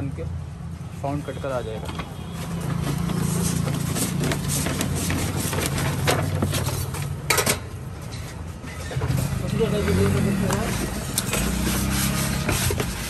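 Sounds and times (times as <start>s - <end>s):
vinyl sticker sheet crackling: 2.8s - 7.1s.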